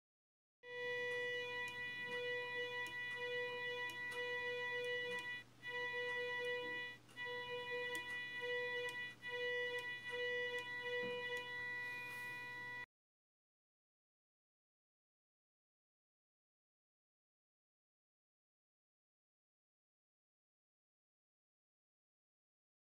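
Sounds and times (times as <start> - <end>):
high-pitched coil whine: 0.7 - 12.9
faint clicks: 1.0 - 11.8.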